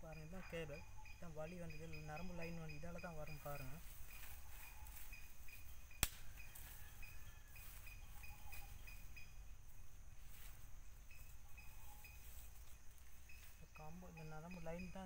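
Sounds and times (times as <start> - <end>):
sharp click: 6.0 - 6.3.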